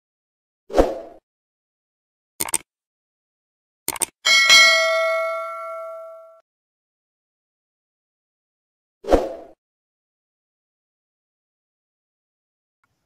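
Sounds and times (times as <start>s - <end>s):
notification bell ding: 4.3s - 6.4s.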